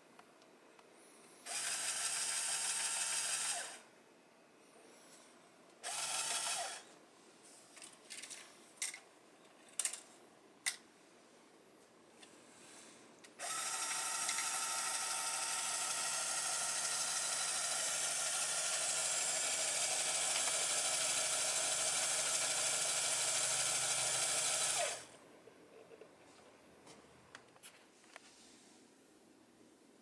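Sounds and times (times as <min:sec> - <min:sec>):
toy motor whirring through gears: 0:01.4 - 0:03.8, 0:05.8 - 0:06.9, 0:13.4 - 0:25.1.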